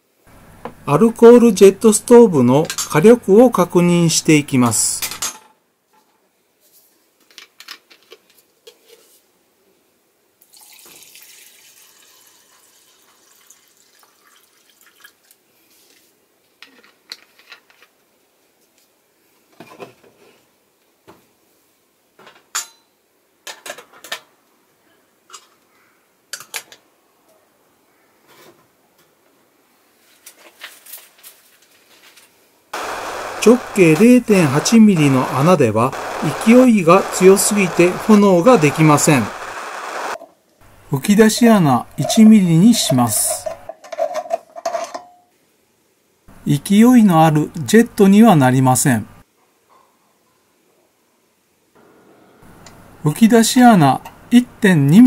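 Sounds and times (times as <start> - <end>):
liquid pouring into a can: 10.4 - 15.4.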